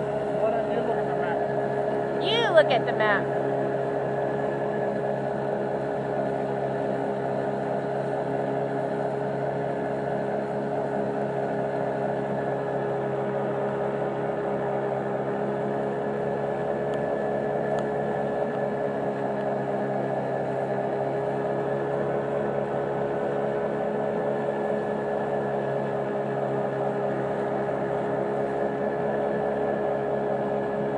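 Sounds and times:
boat engine humming: 0.0s - 30.9s.

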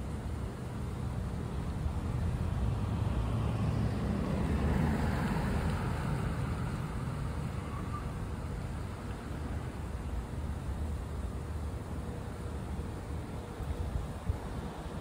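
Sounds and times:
vehicle passing: 2.1s - 8.0s.

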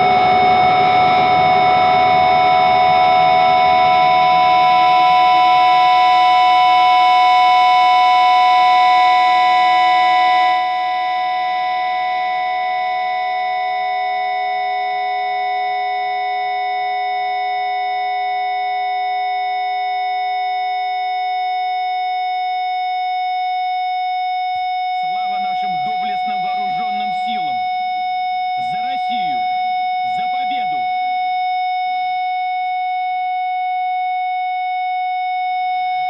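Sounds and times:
electronic drone chord: 0.0s - 18.8s, 24.5s - 31.4s.

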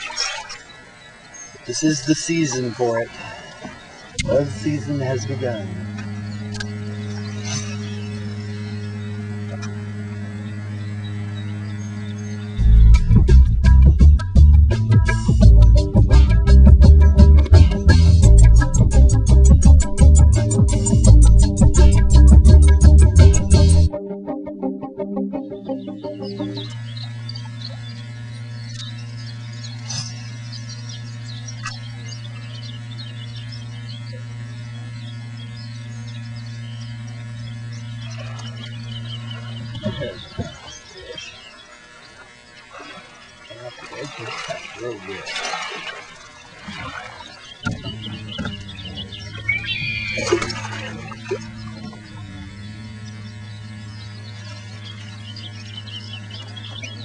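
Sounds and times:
low electrical hum: 0.0s - 24.0s, 24.6s - 57.0s
short clicks: 5.9s - 6.8s
faint high chirps: 46.2s - 57.0s
faint high chirps and squeaks: 47.3s - 51.9s.

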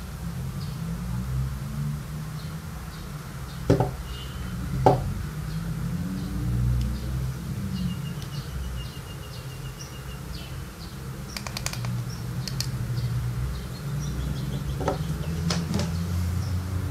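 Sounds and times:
birds chirping: 2.3s - 16.9s
sharp clicks of vape device: 11.3s - 12.8s.

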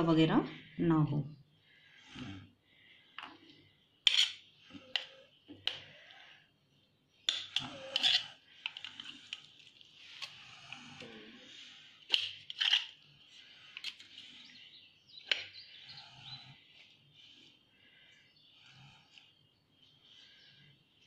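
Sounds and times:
knife clinking and scraping on plate: 4.1s - 4.4s, 7.3s - 8.3s.

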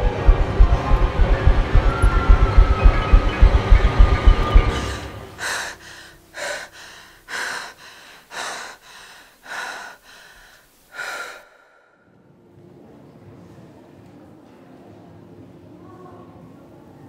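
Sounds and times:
woman breathing hard: 4.7s - 12.1s.

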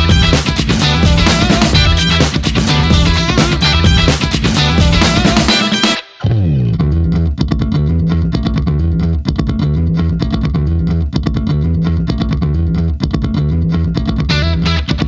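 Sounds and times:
bass and guitar music with beat: 0.0s - 15.0s.

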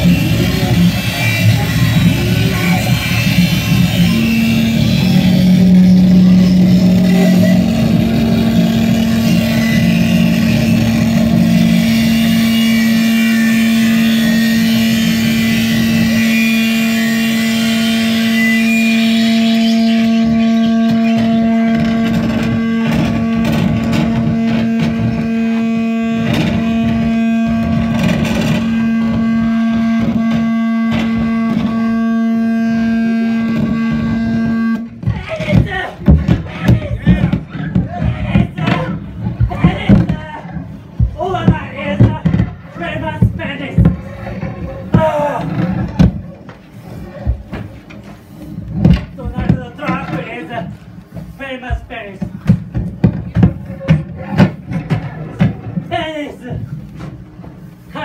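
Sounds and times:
low drone: 0.0s - 34.9s
harsh noise music: 0.0s - 47.6s.

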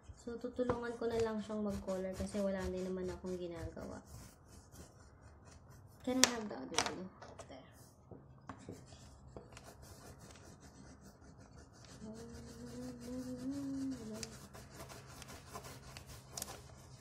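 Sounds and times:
colouring scratching on paper: 0.0s - 6.6s, 8.6s - 17.0s
person humming: 12.0s - 14.3s.

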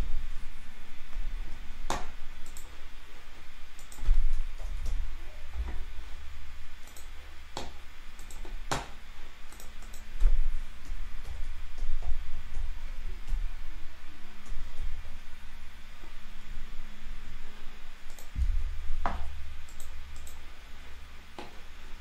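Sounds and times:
computer mouse clicks: 1.9s - 2.7s, 3.8s - 5.0s, 6.8s - 13.4s, 18.0s - 18.4s, 19.0s - 20.5s
low rumble: 18.4s - 20.2s.

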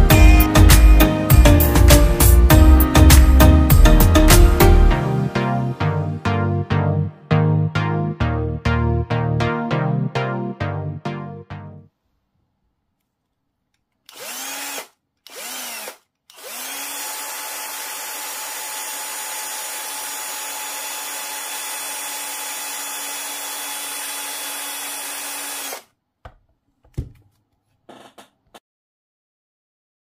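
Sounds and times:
cordless drill spinning: 14.0s - 25.9s.

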